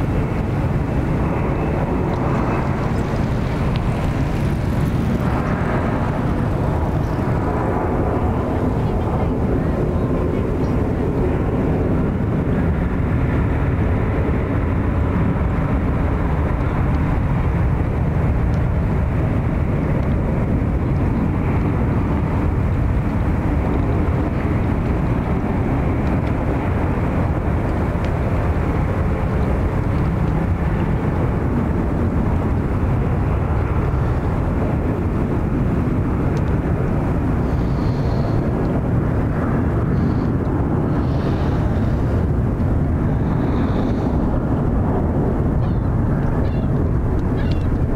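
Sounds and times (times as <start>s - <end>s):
jet engines running: 0.0s - 47.9s.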